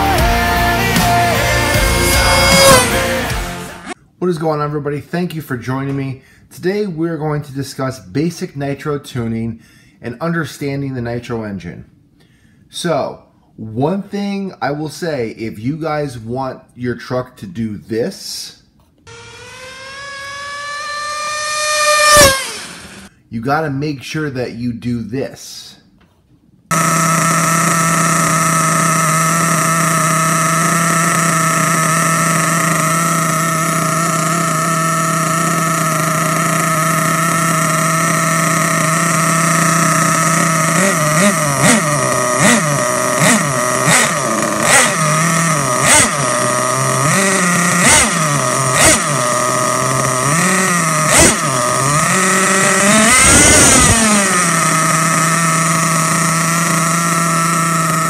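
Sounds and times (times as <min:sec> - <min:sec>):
engine revving: 0:00.0 - 0:04.0, 0:19.1 - 0:23.1, 0:26.7 - 0:58.0
engine throttle blips: 0:00.0 - 0:04.0, 0:19.1 - 0:23.1, 0:26.7 - 0:58.0
model car engine idling: 0:00.0 - 0:04.0, 0:19.1 - 0:23.1, 0:26.7 - 0:58.0.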